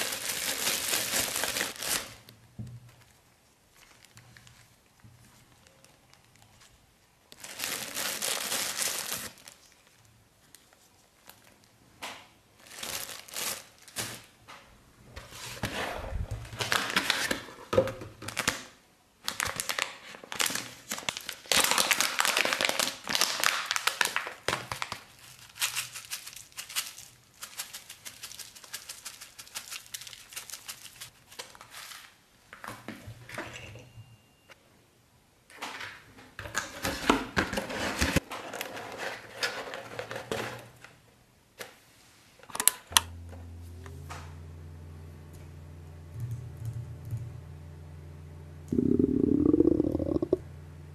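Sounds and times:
plastic packet crinkling: 0:00.0 - 0:02.3, 0:05.4 - 0:11.8, 0:12.6 - 0:14.3, 0:19.3 - 0:31.8.

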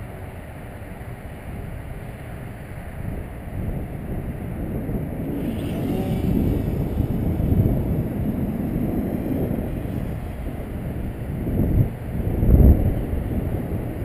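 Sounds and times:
wind buffeting microphone: 0:00.0 - 0:14.0
model plane motor whine: 0:03.7 - 0:14.0.

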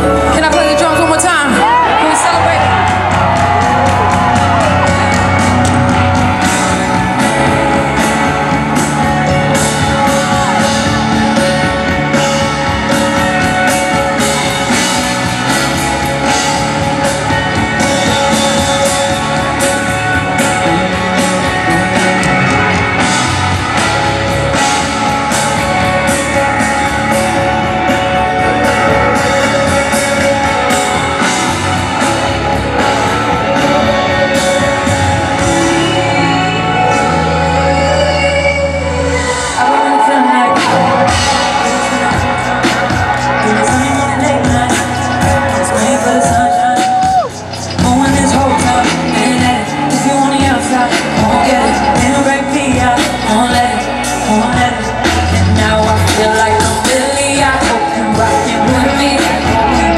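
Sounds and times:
drum kit beat: 0:00.0 - 0:37.8, 0:40.5 - 0:59.9
live rock band music: 0:00.0 - 0:59.9.

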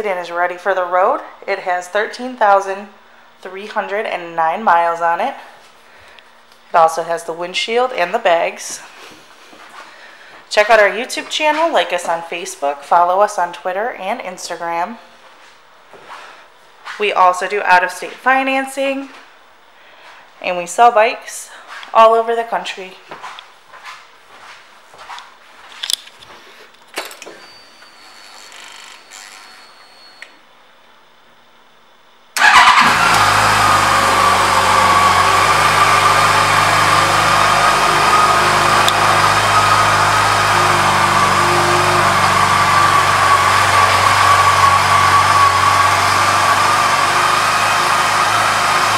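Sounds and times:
motorcycle engine idling: 0:32.4 - 0:48.9.

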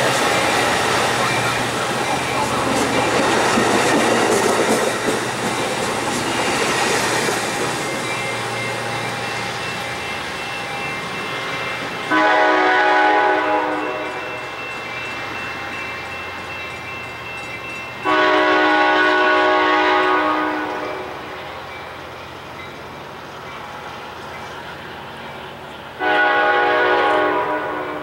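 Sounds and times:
train rumbling away: 0:00.0 - 0:28.0
train horn blasts: 0:12.1 - 0:14.4, 0:18.0 - 0:21.4, 0:26.0 - 0:28.0.

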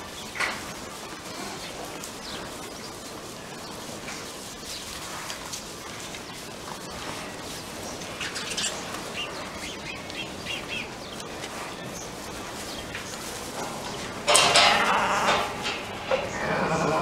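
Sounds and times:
low barn background noise: 0:00.0 - 0:17.0
small birds chirping: 0:00.0 - 0:17.0
sheep bleating: 0:16.2 - 0:17.0.

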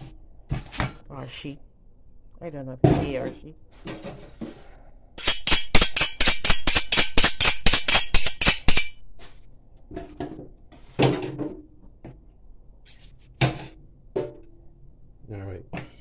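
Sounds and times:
rapid sharp clinks: 0:05.2 - 0:09.0.

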